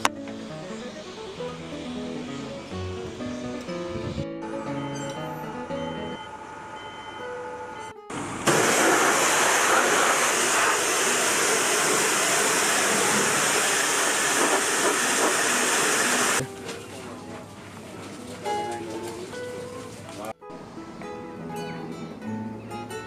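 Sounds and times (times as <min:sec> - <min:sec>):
pressure washer spraying: 0:08.1 - 0:16.4.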